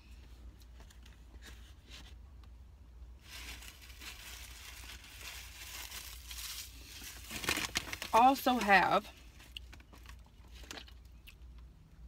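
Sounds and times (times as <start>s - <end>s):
food packaging crinkling: 3.2s - 11.2s.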